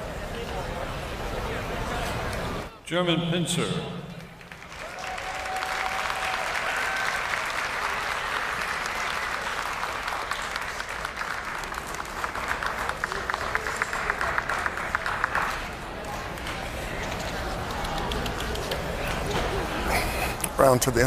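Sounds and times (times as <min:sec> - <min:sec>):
audience applauding: 0:04.4 - 0:19.3.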